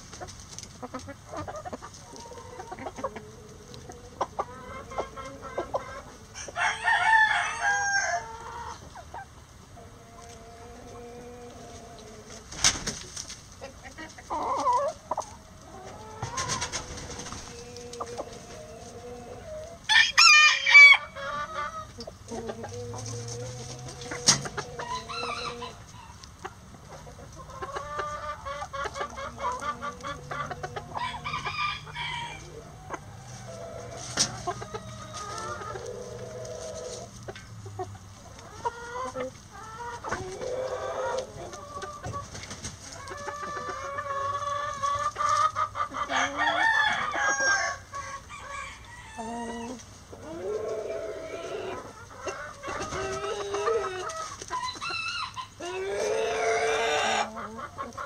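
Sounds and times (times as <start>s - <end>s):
chickens clucking: 0.0s - 58.0s
rooster crowing: 6.4s - 8.4s, 19.9s - 21.1s, 23.9s - 26.2s, 30.8s - 32.8s, 46.1s - 49.8s.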